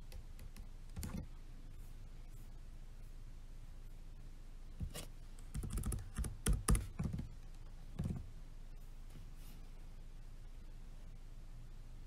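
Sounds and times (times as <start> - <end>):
laptop keyboard typing: 0.0 - 1.3, 4.9 - 8.2.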